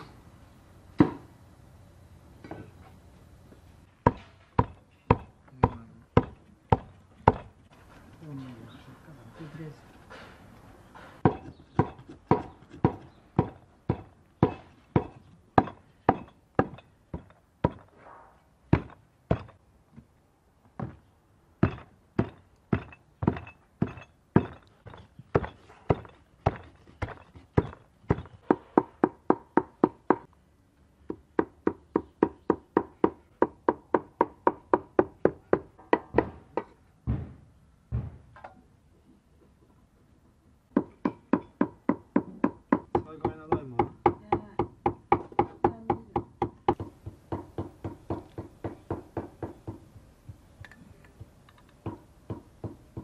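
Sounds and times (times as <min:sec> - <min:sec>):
cleaver chopping meat on wood: 0:11.2 - 0:17.8.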